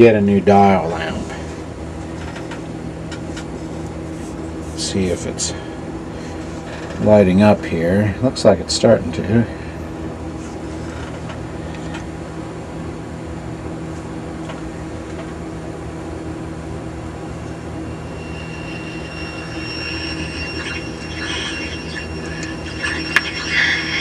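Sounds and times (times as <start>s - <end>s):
radio speaker hum and hiss: 0.0s - 12.1s, 17.1s - 24.0s
radio whistles and crackle: 17.2s - 24.0s.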